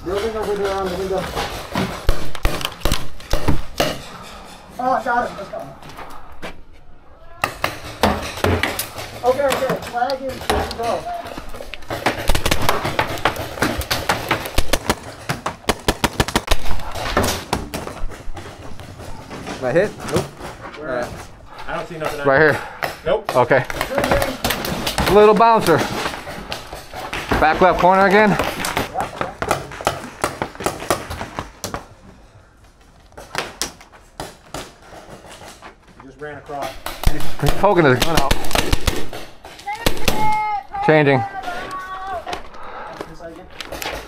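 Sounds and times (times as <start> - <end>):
paintball markers firing: 2.0 - 3.9, 11.8 - 17.7, 36.9 - 40.4.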